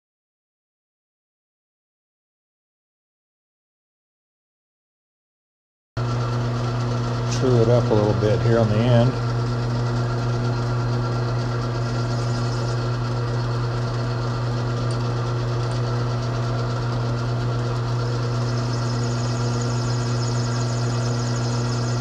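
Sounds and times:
metal lathe cutting: 0:06.1 - 0:22.0.

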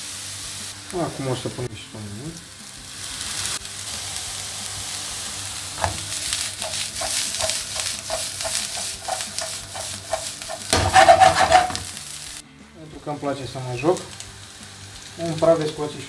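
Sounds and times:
food sizzling in frying pan: 0:00.0 - 0:12.4, 0:13.6 - 0:16.0
frying pan clinking when tossed: 0:05.8 - 0:11.9.

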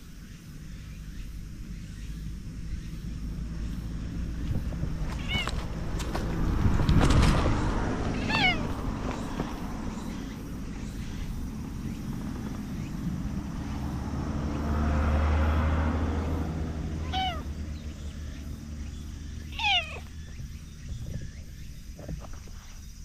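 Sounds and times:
cat meowing: 0:05.1 - 0:05.6, 0:08.1 - 0:09.3, 0:17.0 - 0:17.5, 0:19.5 - 0:20.1.

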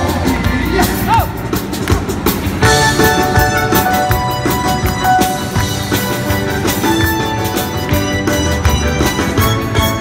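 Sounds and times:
live band playing dance music: 0:00.0 - 0:10.0
steady drum beat: 0:00.0 - 0:10.0.

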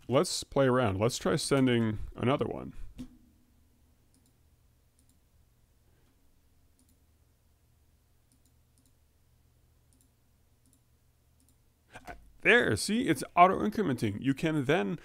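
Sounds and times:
low steady hum: 0:00.0 - 0:15.0
computer mouse clicks: 0:04.1 - 0:04.4, 0:05.0 - 0:05.2, 0:06.8 - 0:07.0, 0:08.3 - 0:09.0, 0:09.9 - 0:12.1.

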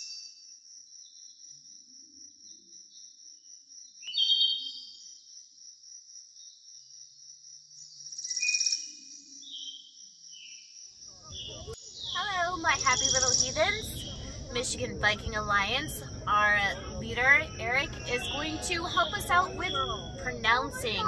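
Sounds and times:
high-pitched insect trill: 0:00.0 - 0:13.6
bird calls: 0:10.4 - 0:14.6.

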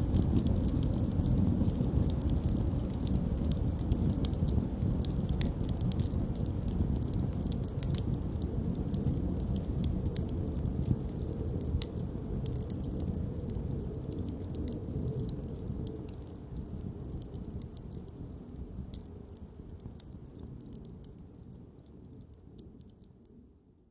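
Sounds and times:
campfire crackling and popping: 0:00.0 - 0:23.4
low rush of flames: 0:00.0 - 0:23.5.

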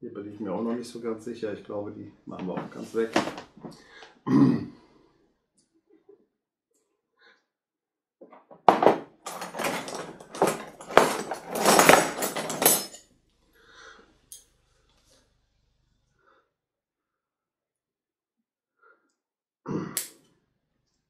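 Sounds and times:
metal hand tools clattering: 0:08.7 - 0:13.0.

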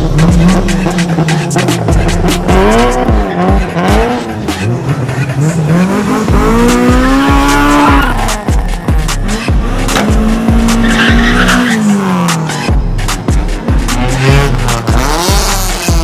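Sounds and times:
car engine revving: 0:00.0 - 0:16.0
tyre squeal: 0:07.3 - 0:08.5, 0:10.5 - 0:12.0.

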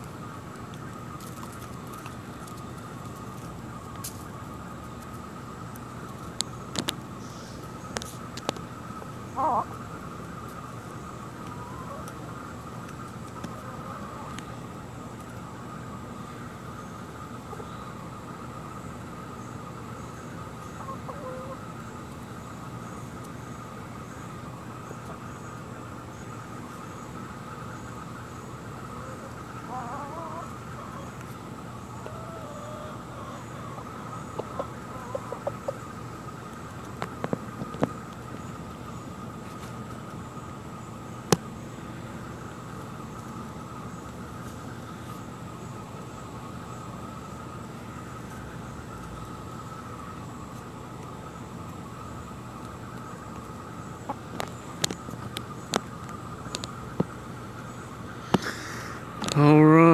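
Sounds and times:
insect chorus: 0:00.0 - 0:59.9
steady background hiss: 0:00.0 - 0:59.9
chickens clucking: 0:06.1 - 0:14.5, 0:20.6 - 0:21.7, 0:28.8 - 0:38.5, 0:52.5 - 0:57.6.

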